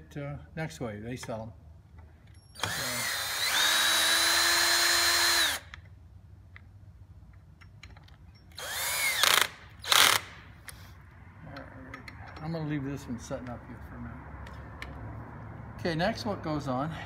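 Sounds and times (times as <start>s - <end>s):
cordless drill whining: 2.5s - 5.8s, 8.6s - 10.3s.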